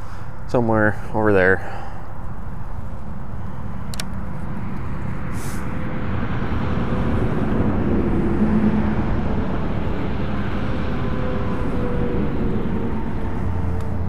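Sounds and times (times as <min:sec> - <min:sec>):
distant engine drone: 0:00.0 - 0:14.0
wind rumble on microphone: 0:02.1 - 0:14.0
brief hiss: 0:05.3 - 0:05.7.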